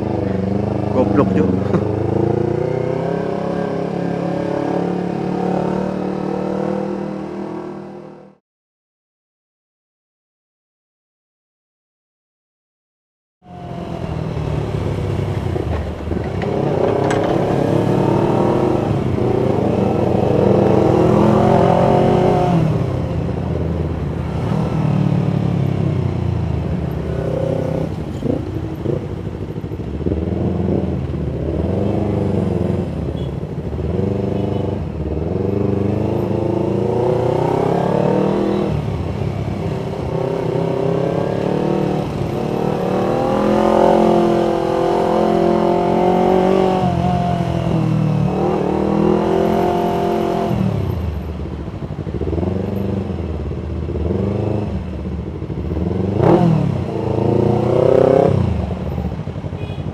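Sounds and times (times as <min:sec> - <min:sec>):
motorcycle engine accelerating: 0:13.5 - 0:33.2, 0:53.9 - 0:59.8.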